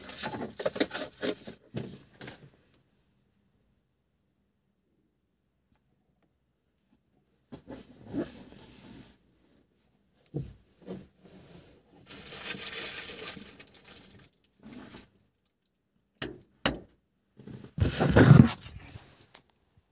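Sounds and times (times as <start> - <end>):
rustling against microphone: 17.6 - 19.4.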